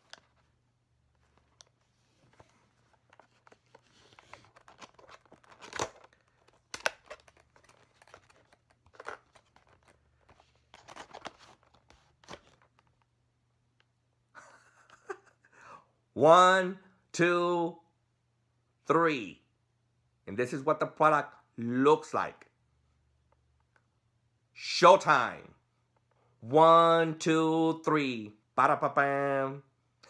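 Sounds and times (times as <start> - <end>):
cardboard flap rustling: 1.2 - 12.9.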